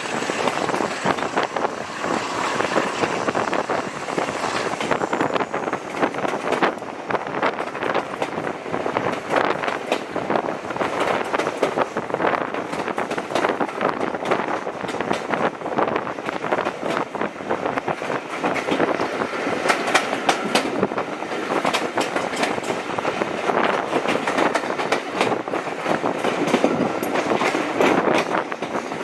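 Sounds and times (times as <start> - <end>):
passing train: 0.0 - 29.0
train wheels rumbling on rail: 0.0 - 29.0
wheels clattering over rail joints: 0.0 - 29.0.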